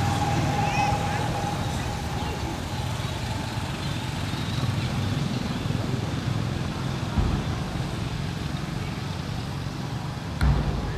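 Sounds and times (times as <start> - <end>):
road traffic rumble: 0.0 - 10.9
low thump: 10.4 - 10.9.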